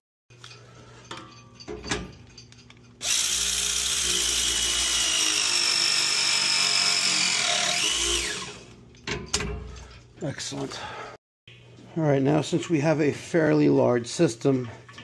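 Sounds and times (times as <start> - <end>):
press tool motor whine: 3.0 - 8.7.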